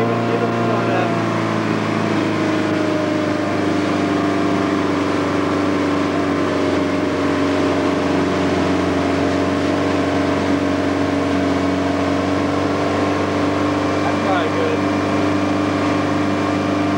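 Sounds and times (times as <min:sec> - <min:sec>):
motorboat engine running: 0:00.0 - 0:16.9
water noise from wake: 0:00.0 - 0:16.9.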